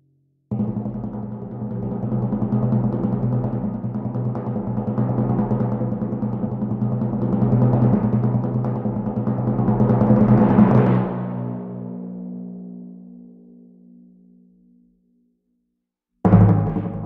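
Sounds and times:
timpani roll: 0:16.3 - 0:17.0.

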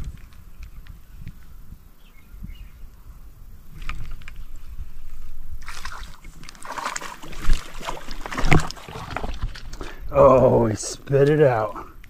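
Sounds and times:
water splashing and sloshing: 0:05.0 - 0:11.4.

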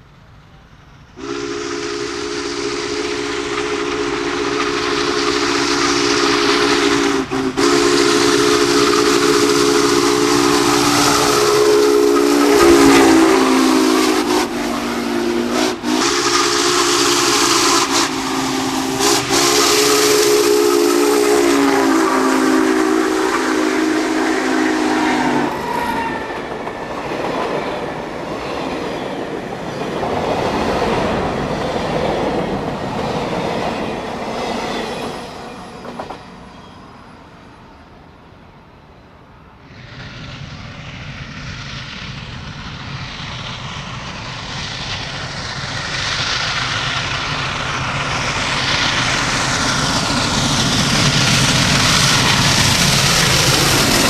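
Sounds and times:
train cars rushing rail noise: 0:00.0 - 0:54.0
steam whistle blasts: 0:01.2 - 0:26.6.

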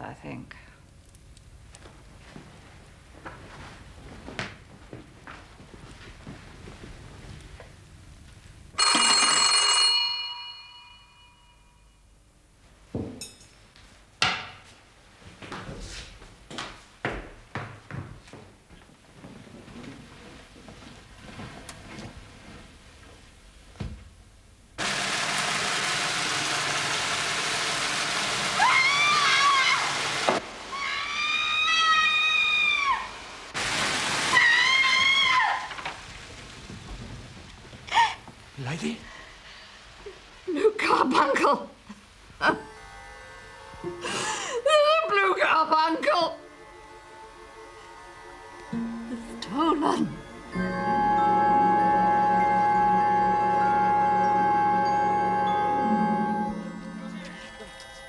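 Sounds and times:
call bell ringing: 0:08.8 - 0:12.1
woman screaming: 0:28.6 - 0:30.0, 0:30.7 - 0:33.2, 0:34.3 - 0:35.8.

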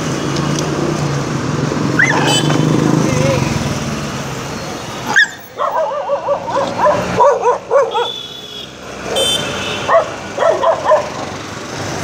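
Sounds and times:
dog squeaks: 0:05.1 - 0:07.0
dog whining and yelping: 0:05.1 - 0:08.0.

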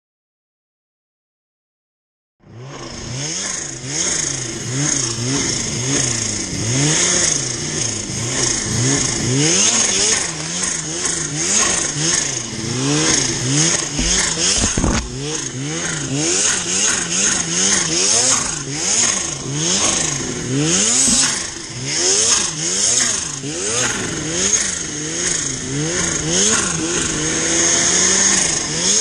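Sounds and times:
snowmobile engine revving: 0:02.5 - 0:29.0
steady high whine: 0:10.1 - 0:17.4.

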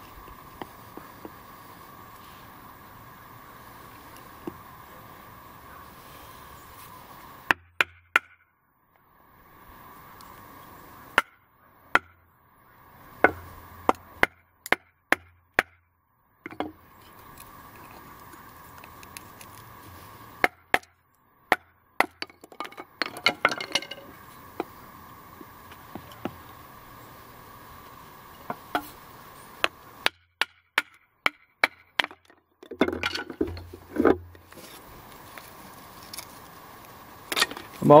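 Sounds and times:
hatchet chopping wood: 0:07.5 - 0:08.4, 0:11.1 - 0:12.2, 0:13.2 - 0:15.8, 0:20.4 - 0:20.9, 0:21.5 - 0:23.7, 0:29.6 - 0:34.3.

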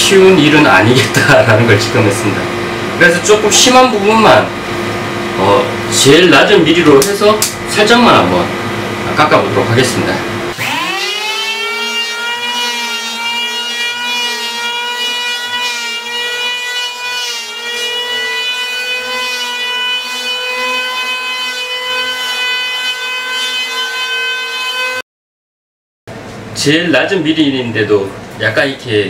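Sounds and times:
electric planer shaving plastic: 0:09.2 - 0:25.0.

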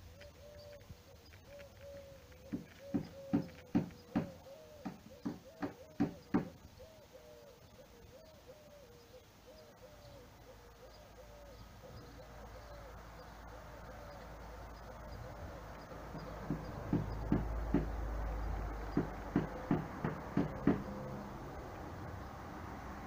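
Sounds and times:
background hiss: 0:00.0 - 0:23.0
sharp knocks: 0:02.5 - 0:06.6, 0:16.4 - 0:21.2.

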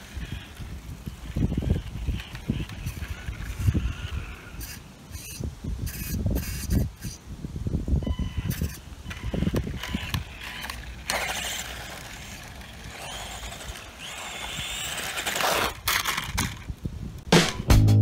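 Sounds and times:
electric motor whine: 0:08.3 - 0:15.9.

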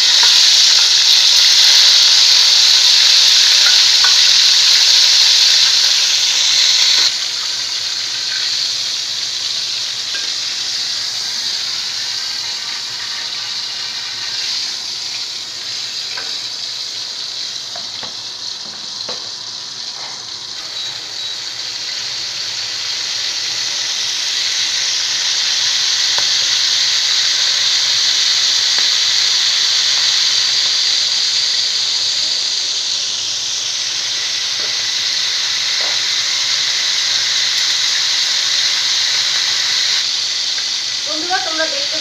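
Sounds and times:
chicken sizzling in hot oil: 0:00.0 - 0:42.0.

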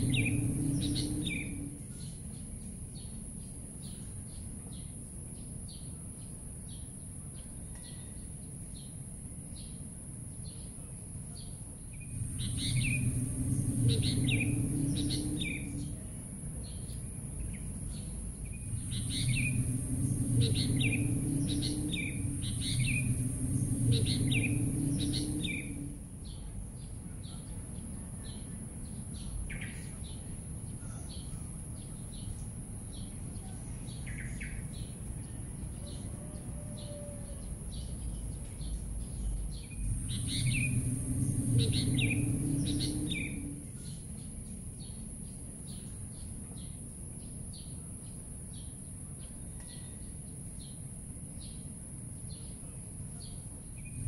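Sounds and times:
low rumble: 0:00.0 - 0:03.0, 0:11.9 - 0:27.1, 0:37.3 - 0:45.0
steady high hiss: 0:00.0 - 0:03.8, 0:11.9 - 0:27.2, 0:38.0 - 0:49.2
songbirds chirping: 0:00.0 - 0:54.0.

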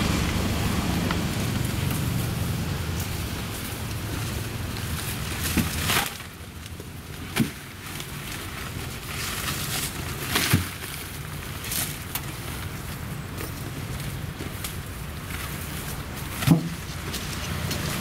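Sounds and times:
rustling leaves and plastic: 0:00.0 - 0:18.0
bags thumping into metal wheelbarrow: 0:16.2 - 0:17.1.

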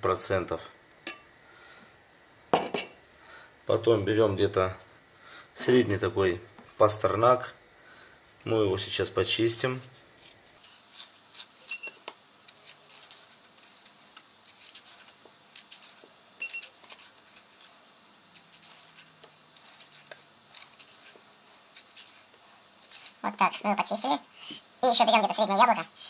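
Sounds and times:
knife scraping vegetable skin: 0:10.2 - 0:23.2.

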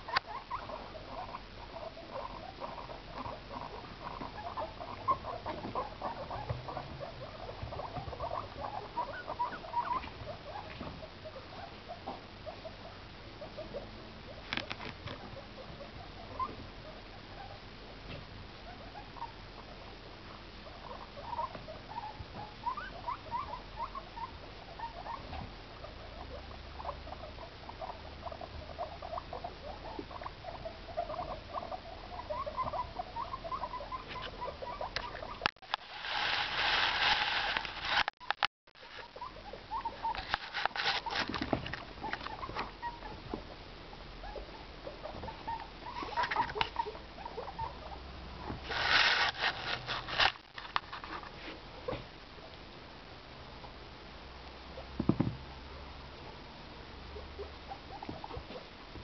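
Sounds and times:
guinea pigs squeaking: 0:00.0 - 0:52.6, 0:57.0 - 0:59.0
loud rustling: 0:35.6 - 0:38.2, 0:48.6 - 0:51.3.

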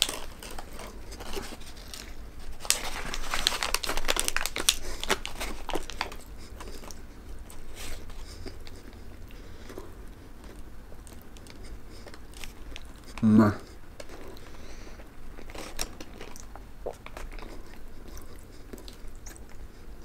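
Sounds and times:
paper wrapper crinkling: 0:00.0 - 0:09.0, 0:14.0 - 0:16.5
person chewing food: 0:00.0 - 0:20.0.

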